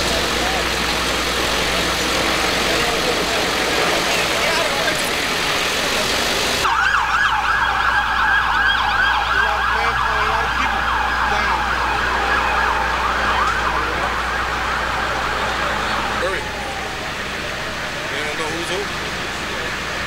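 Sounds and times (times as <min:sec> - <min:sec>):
ambulance siren yelping: 0:06.6 - 0:19.0.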